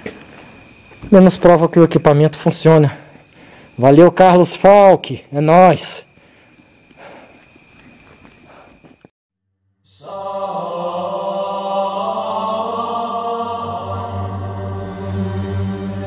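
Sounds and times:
cricket chirring: 0:00.0 - 0:09.1
slow choir-like chant music: 0:09.8 - 0:16.0
low steady drone: 0:09.9 - 0:16.0.

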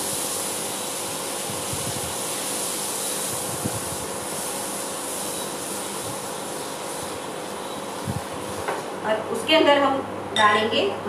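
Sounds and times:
fan-like whooshing: 0:00.9 - 0:09.0.

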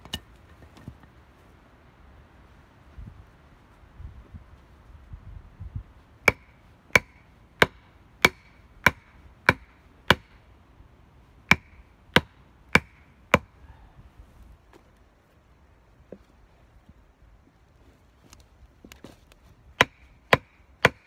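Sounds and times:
hatchet striking wood: 0:06.2 - 0:10.4, 0:11.5 - 0:13.5, 0:19.8 - 0:21.0.

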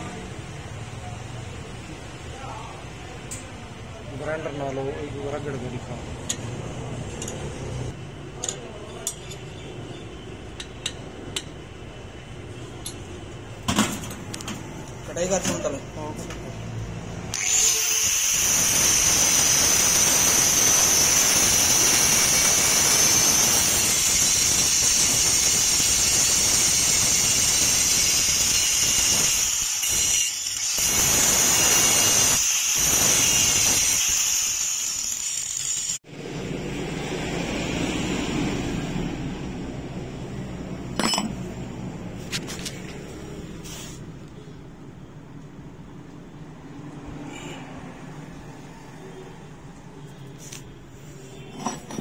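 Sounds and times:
angle grinder cutting steel: 0:17.3 - 0:36.0.

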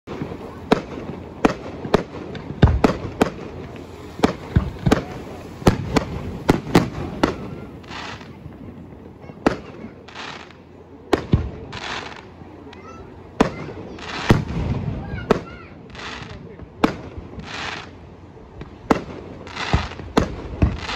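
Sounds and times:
firework hissing bursts: 0:00.1 - 0:18.1, 0:18.8 - 0:20.9
firework shells banging: 0:00.2 - 0:14.7.

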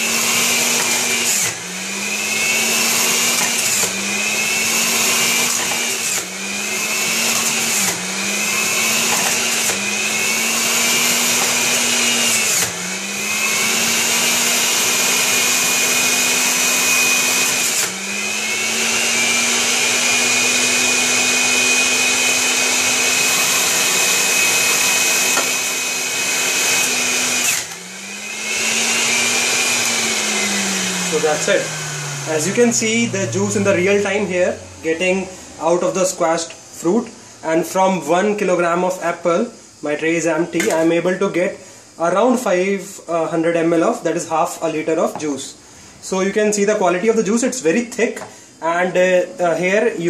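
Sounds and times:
juicer motor whining: 0:00.0 - 0:35.0.

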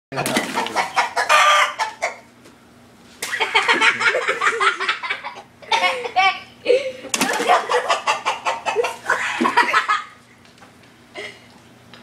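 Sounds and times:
rooster crowing: 0:01.1 - 0:02.2.

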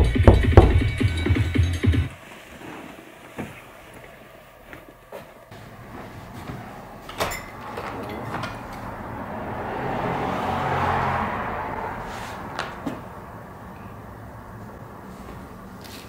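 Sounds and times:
sharp knocks: 0:00.0 - 0:01.1
street traffic noise: 0:03.4 - 0:16.0
vehicle passing: 0:05.5 - 0:16.0.

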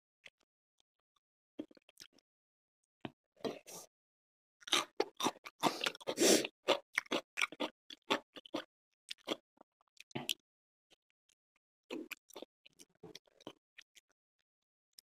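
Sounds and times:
person chewing and lip-smacking: 0:04.6 - 0:10.4, 0:11.9 - 0:14.1.

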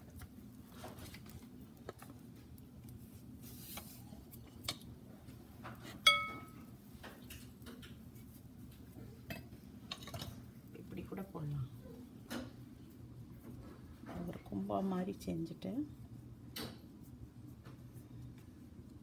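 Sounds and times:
low steady hum: 0:00.0 - 0:19.0
ringing clink of utensil: 0:06.0 - 0:06.6.

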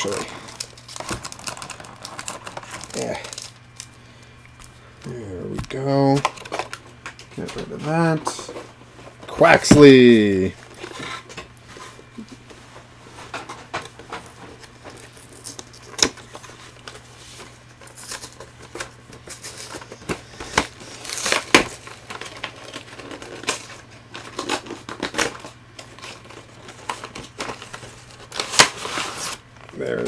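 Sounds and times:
plastic wrap rustling: 0:00.0 - 0:04.0, 0:13.0 - 0:30.0.

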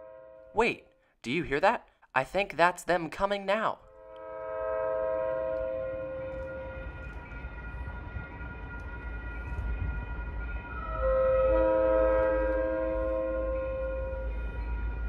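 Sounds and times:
locomotive air horn: 0:00.0 - 0:00.6, 0:03.9 - 0:14.4.

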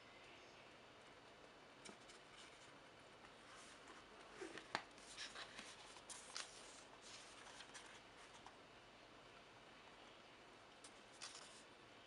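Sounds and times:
book rustling and pages turning: 0:01.8 - 0:08.6, 0:10.8 - 0:11.7.

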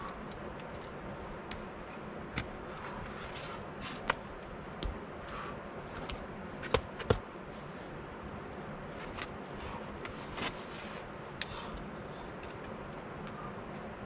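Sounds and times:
steady outdoor hiss: 0:00.0 - 0:14.0
hands and shoes slapping rock: 0:03.8 - 0:07.3.

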